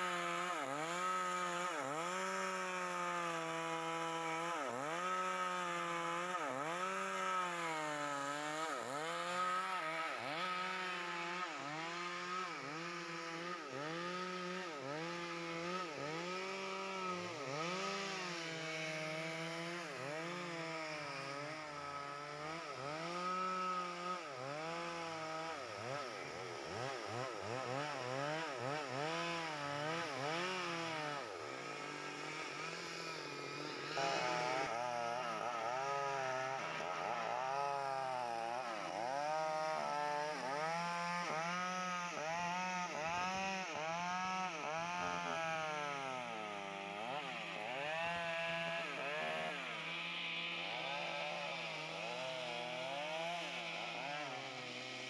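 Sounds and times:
chainsaw cutting log: 0:00.0 - 0:55.0.

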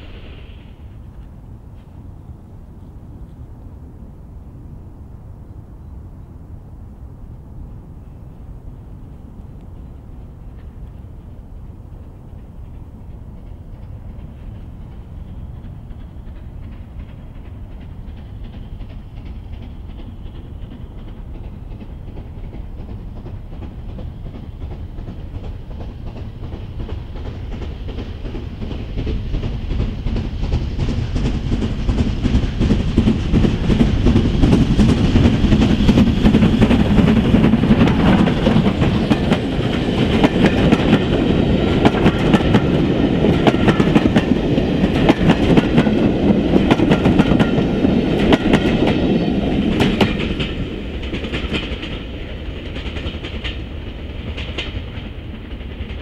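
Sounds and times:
steam locomotive working hard: 0:00.0 - 0:03.4, 0:08.0 - 0:56.0
wheels clacking over rail joints: 0:09.8 - 0:56.0.

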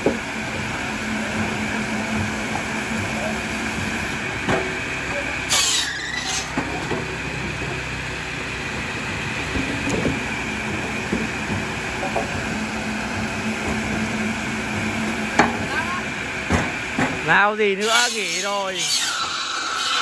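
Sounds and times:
low hum: 0:00.0 - 0:17.2
wood-cutting machine motor: 0:08.8 - 0:20.0.

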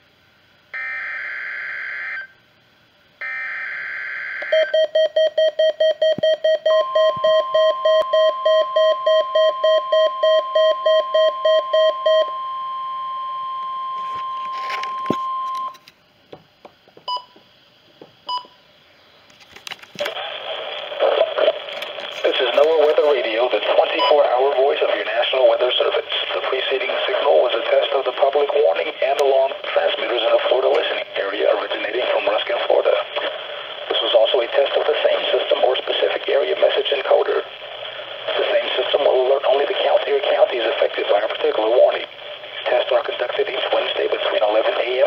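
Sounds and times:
steady warning alarm tone: 0:00.7 - 0:02.4, 0:03.2 - 0:15.8
broadcast voice: 0:20.0 - 0:45.0.

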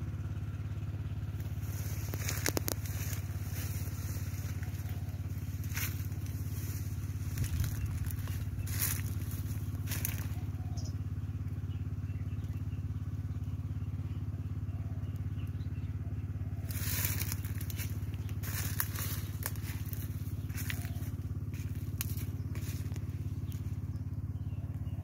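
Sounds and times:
small engine running: 0:00.0 - 0:25.0
leaves brushing microphone: 0:01.4 - 0:10.6, 0:16.6 - 0:24.0.

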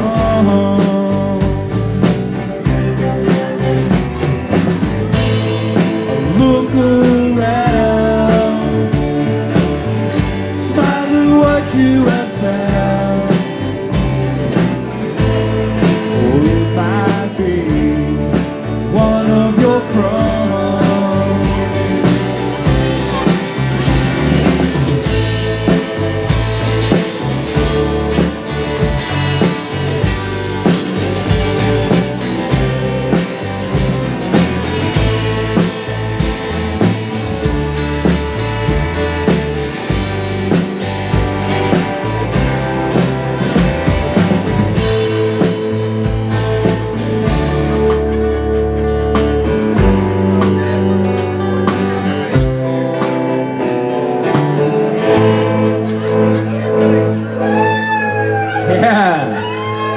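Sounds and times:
man singing: 0:00.0 - 0:02.2, 0:05.8 - 0:09.8, 0:10.5 - 0:14.3, 0:15.9 - 0:22.4
live rock band playing: 0:00.0 - 0:59.9.

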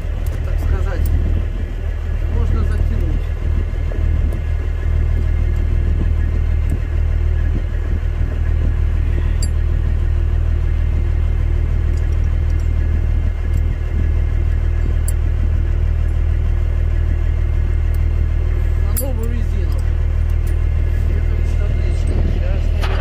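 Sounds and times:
diesel truck engine idling: 0:00.0 - 0:23.0
tire chains clinking: 0:09.2 - 0:10.0, 0:11.7 - 0:16.4, 0:18.6 - 0:23.0.

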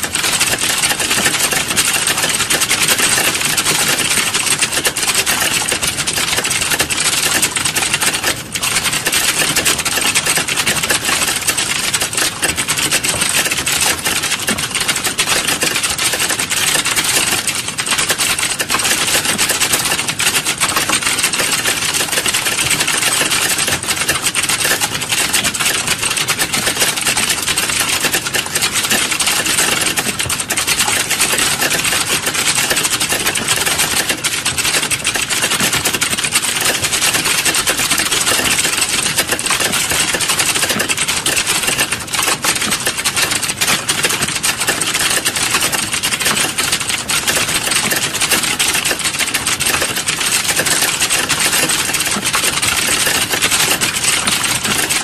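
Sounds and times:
fast keyboard typing: 0:00.0 - 0:55.0.

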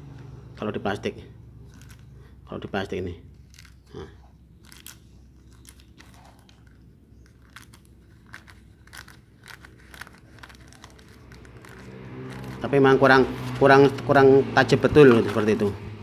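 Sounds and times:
plastic bag crinkling: 0:03.4 - 0:03.8, 0:04.5 - 0:12.7.

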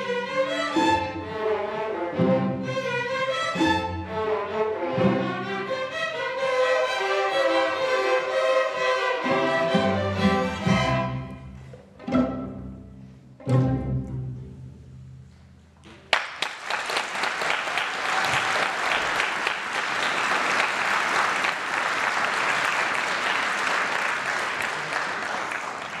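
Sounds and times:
audience applause: 0:16.1 - 0:26.0.

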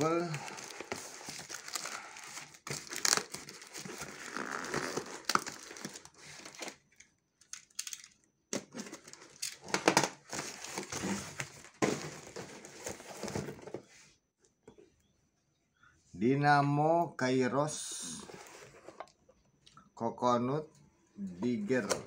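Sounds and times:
cardboard tearing and crumpling: 0:00.0 - 0:06.8.

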